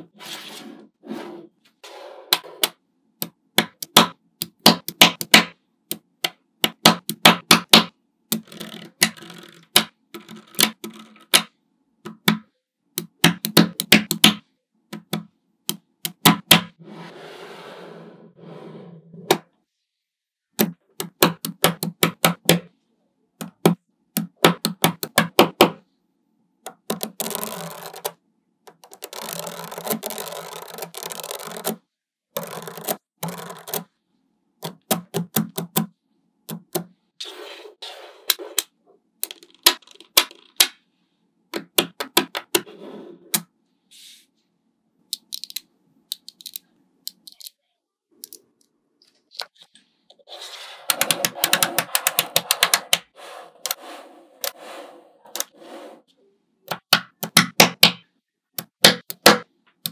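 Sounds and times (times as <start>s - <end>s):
magnetic balls clicking together: 39.2s - 40.7s, 45.1s - 47.5s.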